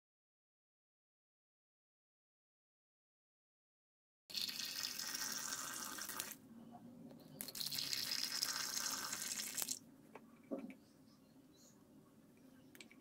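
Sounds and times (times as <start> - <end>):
soup pouring into glass cup: 4.3 - 6.4, 7.4 - 9.8.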